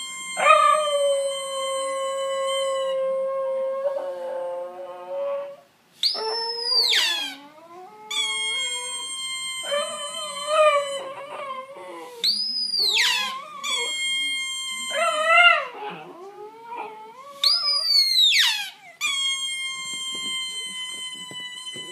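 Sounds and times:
high squeaky whistles: 6.0s - 7.4s, 8.1s - 11.1s, 12.2s - 15.4s, 17.4s - 21.9s.

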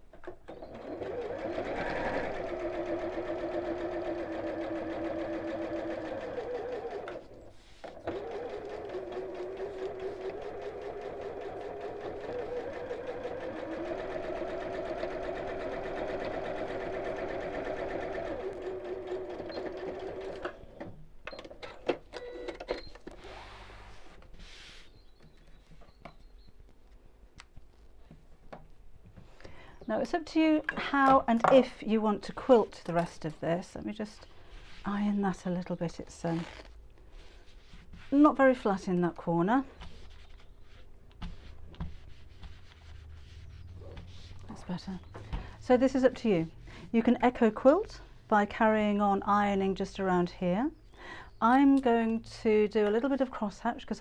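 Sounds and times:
sewing machine stitching: 0.5s - 20.8s.

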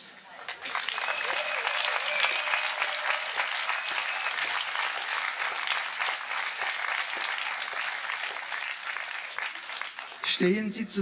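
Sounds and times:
audience applauding: 0.3s - 10.6s.

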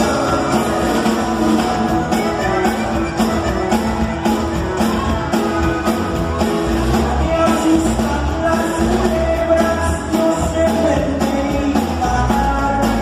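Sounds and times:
button accordion melody: 0.0s - 13.0s
steady drum beat: 0.0s - 13.0s.

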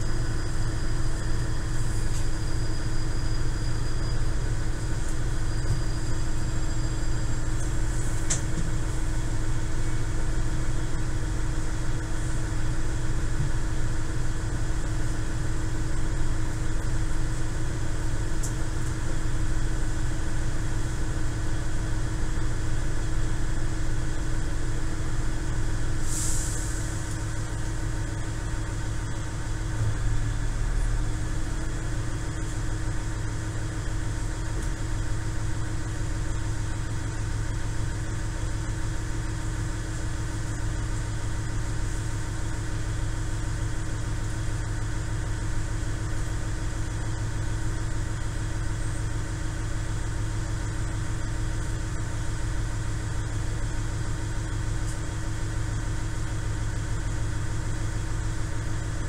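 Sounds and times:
diesel engine idling hum: 0.0s - 59.0s
short hiss: 26.0s - 27.1s.

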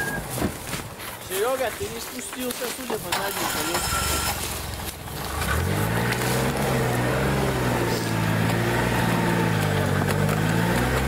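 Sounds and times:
all-terrain vehicle engine revving: 3.1s - 11.0s.

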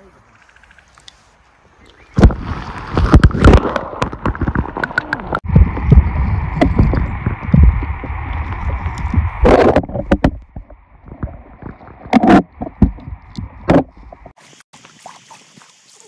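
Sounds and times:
river water splashing: 1.8s - 16.0s
heavy low rumble: 4.6s - 14.4s.

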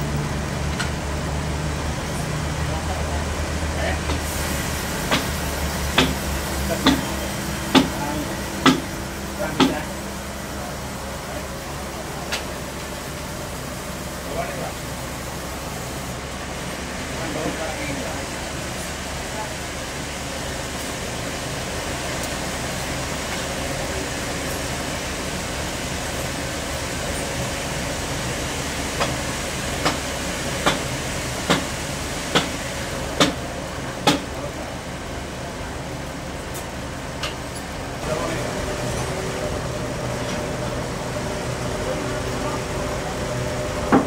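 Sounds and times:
engine hum: 0.0s - 44.0s
sawmill machinery humming: 0.0s - 44.0s
sharp knocks: 6.0s - 6.2s, 6.8s - 7.1s, 7.7s - 8.9s.

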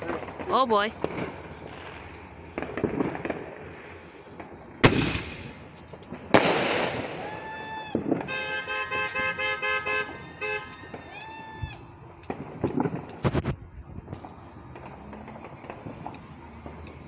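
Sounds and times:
crackling hiss: 0.0s - 17.0s
firework bangs: 0.0s - 17.0s
car horn honking: 8.2s - 10.9s.

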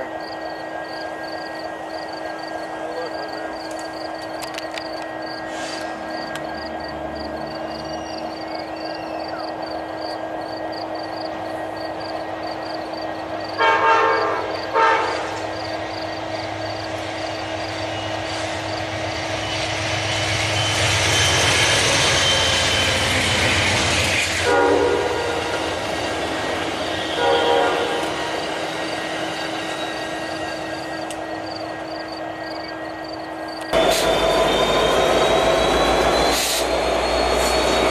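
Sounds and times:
train passing at speed: 0.0s - 37.9s
train horn blasts: 13.6s - 15.5s, 24.4s - 25.8s, 26.7s - 28.5s.

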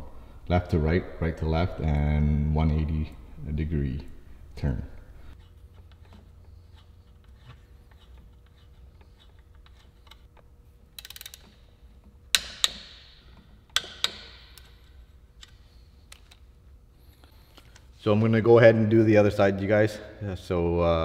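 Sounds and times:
ratchet clicks: 5.7s - 16.4s.

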